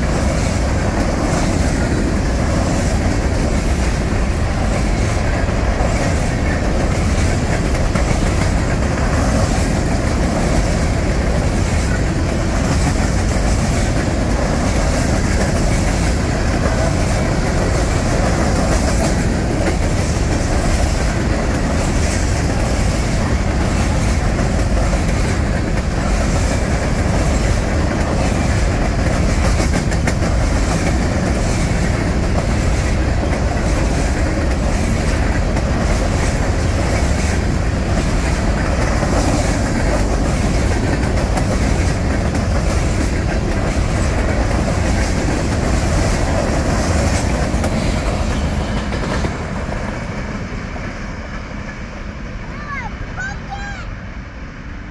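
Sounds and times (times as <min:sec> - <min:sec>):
clickety-clack over rail joints: 0:00.0 - 0:53.4
train wheels rolling on rails: 0:00.0 - 0:54.9.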